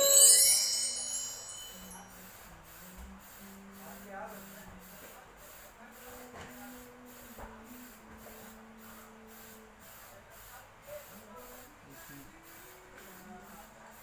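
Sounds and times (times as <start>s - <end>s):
low steady tone: 0.0s - 2.3s
spray paint can hissing: 0.0s - 14.0s.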